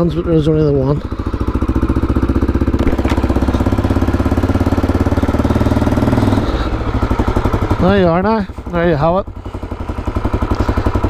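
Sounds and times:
motorcycle engine at low revs: 0.0s - 11.0s.

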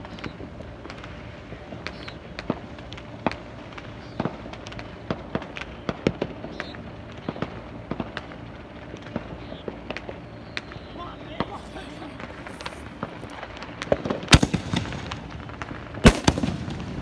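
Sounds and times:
fireworks bangs and pops: 0.0s - 17.0s
firework whistles: 9.3s - 13.5s.

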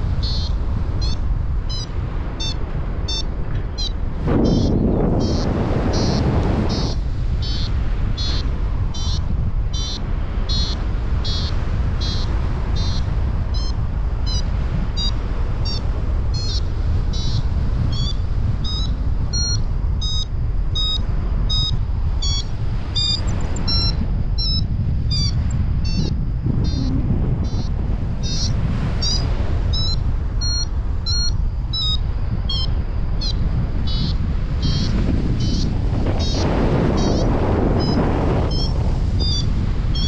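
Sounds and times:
wind on microphone: 0.0s - 40.0s
variometer short high beeps: 0.2s - 14.4s, 15.0s - 15.8s, 16.4s - 36.4s, 37.0s - 40.0s.

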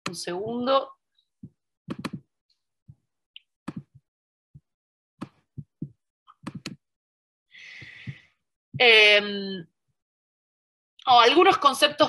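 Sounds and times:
mouse and keyboard clicking: 1.9s - 2.2s, 6.4s - 6.8s.

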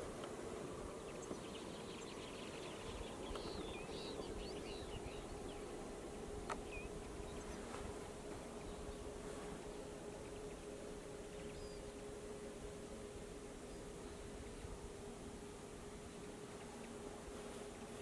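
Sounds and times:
background noise: 0.0s - 18.0s
faint hum: 0.0s - 18.0s
finches twittering: 0.0s - 18.0s.

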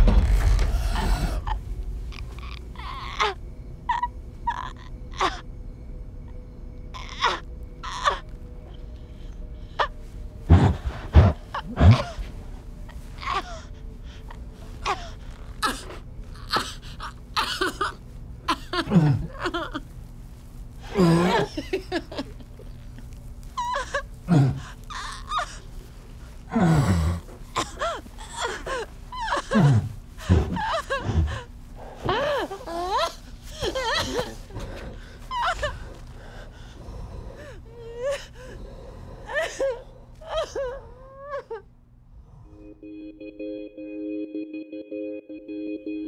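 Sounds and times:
woman giggling: 20.9s - 22.8s.

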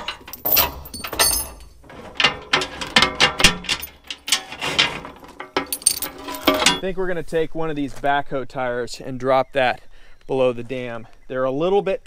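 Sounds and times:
chain clanking on metal trailer: 0.0s - 6.9s.

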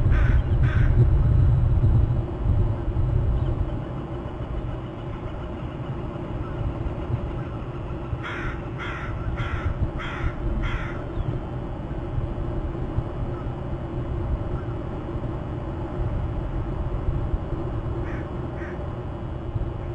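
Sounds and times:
steady low rumble: 0.0s - 19.9s
crow cawing: 0.1s - 1.0s, 8.2s - 11.1s, 18.0s - 18.8s.

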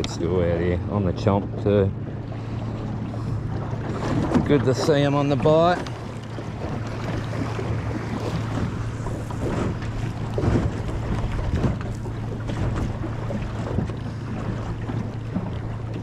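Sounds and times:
steady low hum: 0.0s - 16.0s
water slapping against boat hull: 0.0s - 16.0s
wind on microphone: 2.4s - 15.9s.

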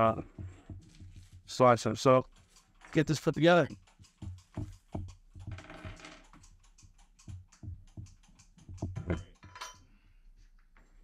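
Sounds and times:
small parts clicking on wood: 2.0s - 9.7s.

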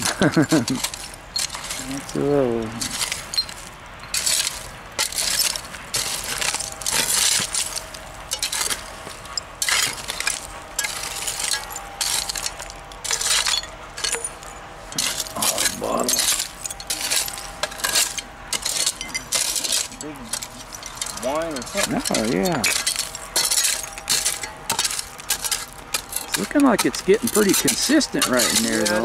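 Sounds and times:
glass clinking in soil: 0.0s - 29.0s
digging tool chopping dirt: 15.0s - 29.0s.

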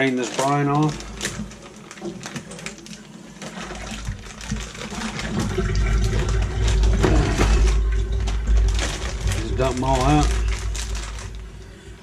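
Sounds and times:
liquid pouring into steel sink: 3.4s - 11.4s.

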